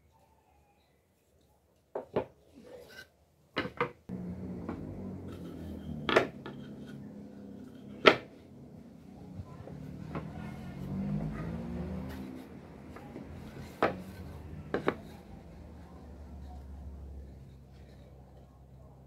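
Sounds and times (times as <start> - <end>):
steady low hum: 4.1 - 9.7
wooden boards knocking on workbench: 6.0 - 6.8, 7.8 - 8.3, 13.8 - 14.1, 14.7 - 15.1.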